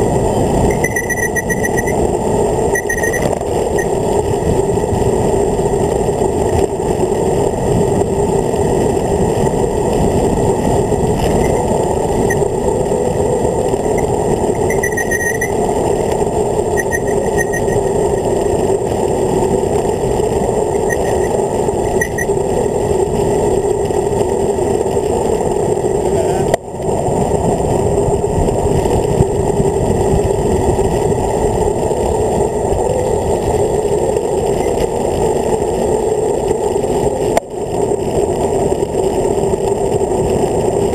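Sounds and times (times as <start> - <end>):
wind rushing over camera: 0.0 - 40.9
short high chirps: 14.6 - 15.5.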